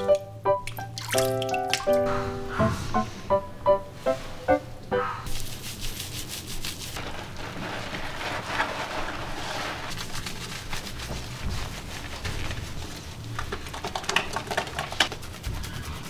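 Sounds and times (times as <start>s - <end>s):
background music: 0.0s - 5.2s
water spraying from shower head: 5.3s - 12.9s.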